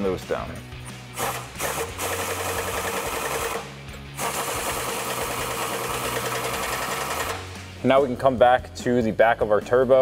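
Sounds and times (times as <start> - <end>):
pneumatic impact wrench hammering: 1.1 - 7.5.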